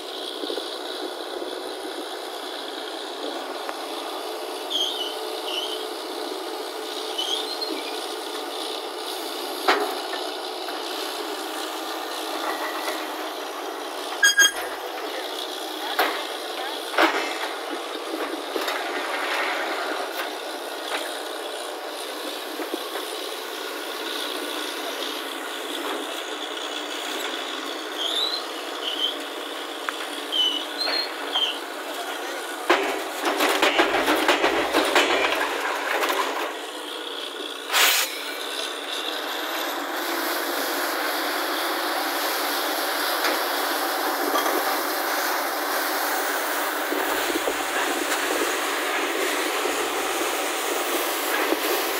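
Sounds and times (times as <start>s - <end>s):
drilling rig running: 0.0s - 51.9s
compressed air blowing water: 37.7s - 38.3s.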